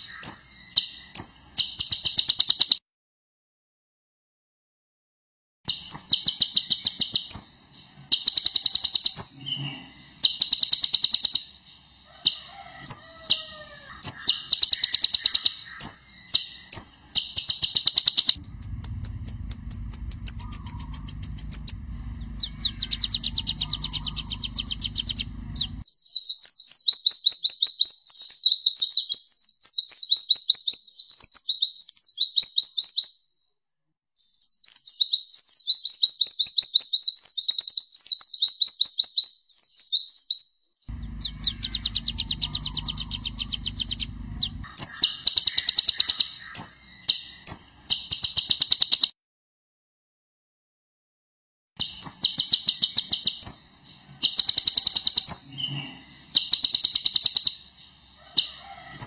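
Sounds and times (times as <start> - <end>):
bird singing trills and warbles: 0.0 - 2.8, 5.7 - 33.3, 34.2 - 49.1, 51.8 - 59.0
low hum: 16.0 - 25.8, 40.9 - 48.1.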